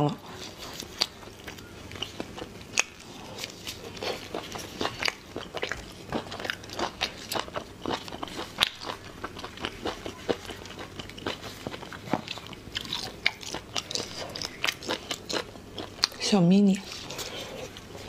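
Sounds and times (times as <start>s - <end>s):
person chewing: 0.1s - 16.2s, 16.8s - 18.0s.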